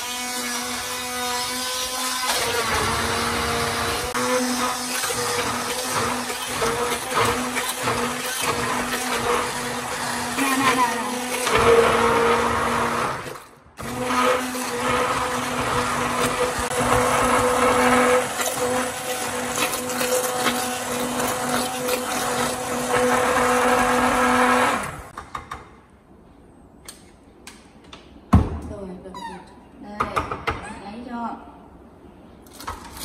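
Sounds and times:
immersion blender whining: 0:00.0 - 0:25.2.

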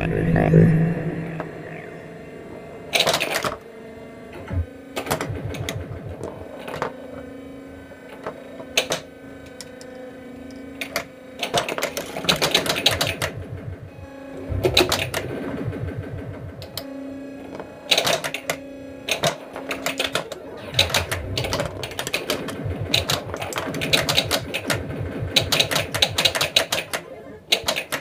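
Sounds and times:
low hum from pinball machine: 0:00.0 - 0:28.0
pinball machine mechanical clatter: 0:02.9 - 0:28.0.

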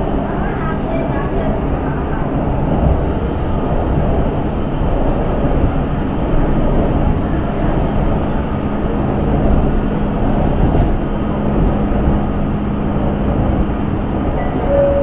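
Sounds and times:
train low rumble: 0:00.0 - 0:15.0
short high tone: 0:14.6 - 0:15.0.

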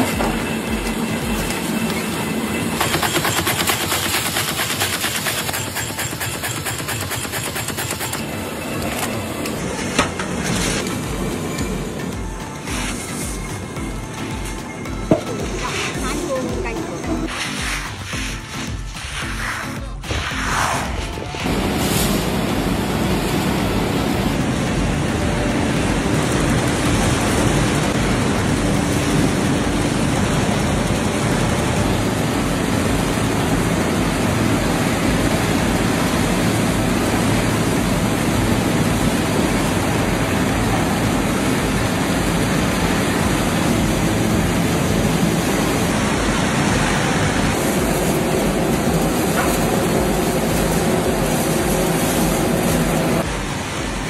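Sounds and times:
machinery running: 0:00.0 - 0:54.0.

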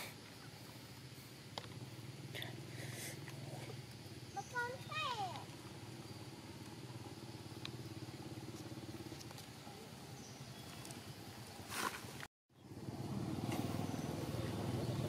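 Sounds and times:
engine idling hum: 0:00.0 - 0:11.7, 0:12.5 - 0:15.0
brief rustle: 0:11.7 - 0:12.3.

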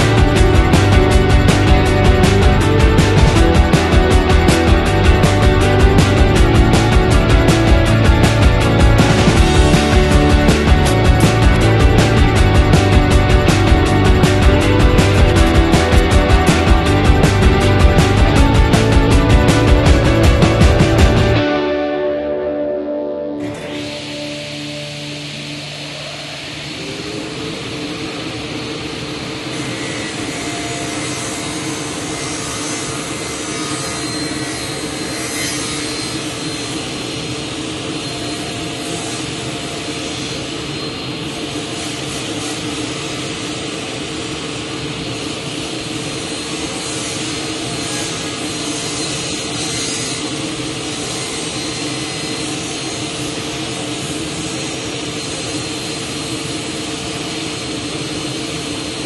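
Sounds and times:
table saw running: 0:00.0 - 0:21.4, 0:23.4 - 0:59.0
saw blade cutting wood: 0:29.2 - 0:43.5, 0:46.2 - 0:56.8.

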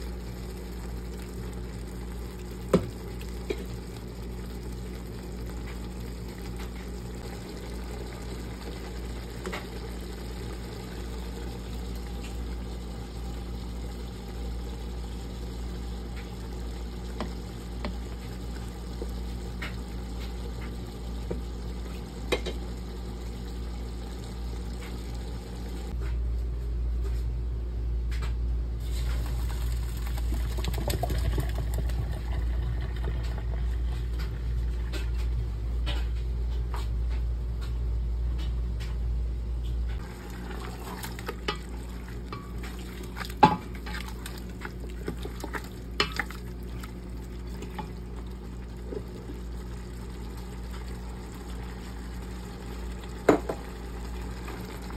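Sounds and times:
rice boiling: 0:00.0 - 0:26.0, 0:28.8 - 0:37.7, 0:39.9 - 0:54.9
water draining into colander: 0:28.8 - 0:34.4, 0:40.0 - 0:54.9
wooden spoon stirring: 0:40.0 - 0:48.2.

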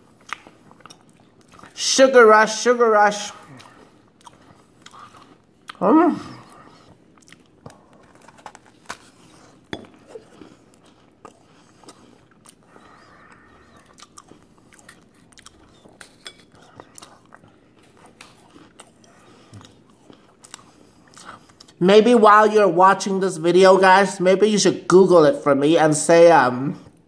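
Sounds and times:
meringue crunching while chewed: 0:00.0 - 0:01.8, 0:03.4 - 0:21.8.

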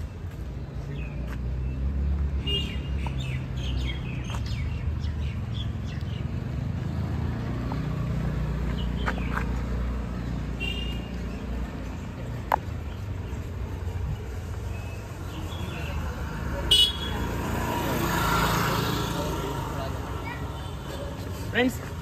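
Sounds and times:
small birds chirping: 0:00.0 - 0:07.3, 0:08.3 - 0:16.4.

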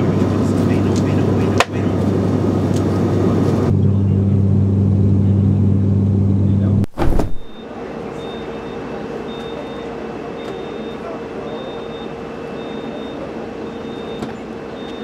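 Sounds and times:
aircraft and ground equipment running: 0:00.0 - 0:08.1.

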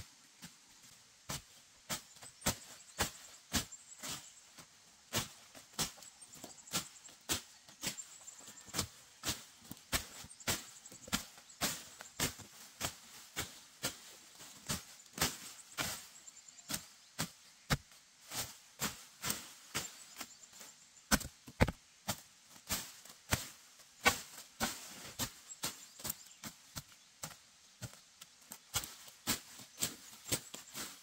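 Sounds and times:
machete chopping undergrowth: 0:21.1 - 0:26.5.

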